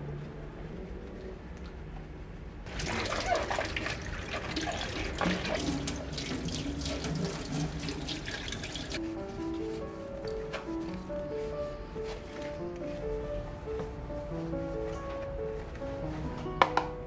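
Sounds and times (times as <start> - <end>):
tap water running into sink: 2.7 - 9.0.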